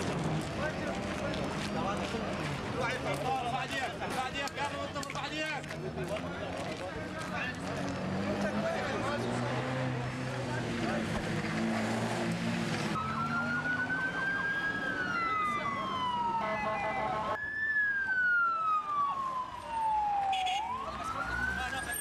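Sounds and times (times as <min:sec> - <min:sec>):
vehicle engine: 0:00.0 - 0:17.4
ambulance siren wailing: 0:12.7 - 0:22.0
steady siren tone: 0:13.0 - 0:22.0.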